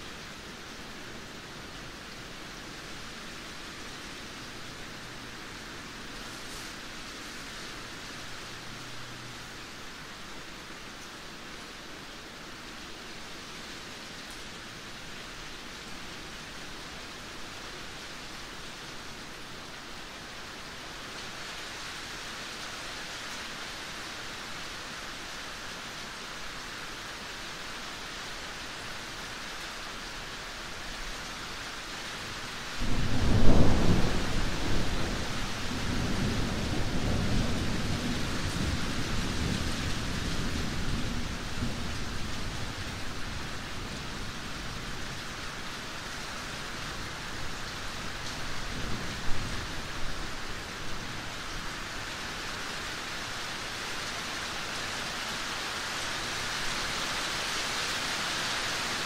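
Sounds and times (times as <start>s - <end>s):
rain hissing: 0.0s - 59.0s
thunder clap and rumble: 32.8s - 42.0s.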